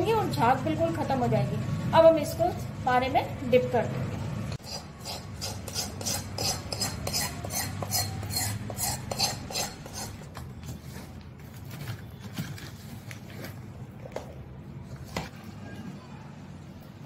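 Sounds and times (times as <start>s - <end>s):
metal spoon scraping steel bowl: 4.6s - 10.4s.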